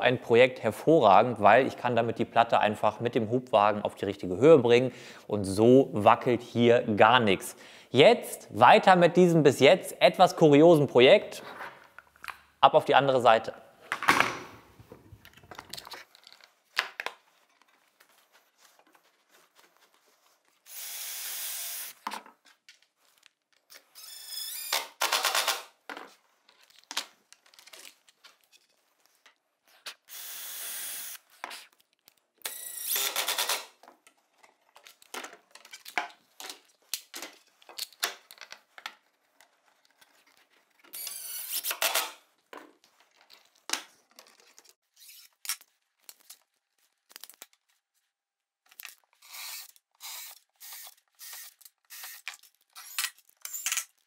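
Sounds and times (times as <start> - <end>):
cordless drill whirring: 20.7 - 22.0, 23.9 - 24.9, 30.1 - 31.2, 32.4 - 33.5, 40.9 - 41.9, 49.2 - 53.7
panels and screws clicking: 29.8 - 42.2, 48.7 - 54.0.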